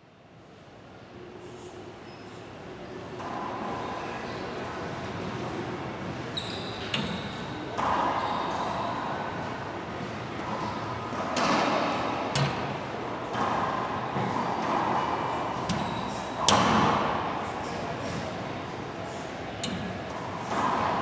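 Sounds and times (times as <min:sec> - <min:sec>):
high squeak: 0:06.4 - 0:07.0
racquetball hits echoing: 0:07.0 - 0:18.3, 0:19.6 - 0:21.0.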